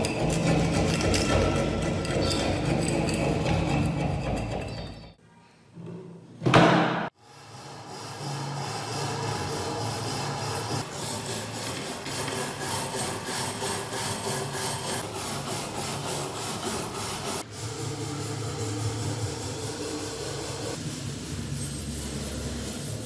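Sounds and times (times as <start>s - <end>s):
wire brush scrubbing metal: 7.4s - 23.0s.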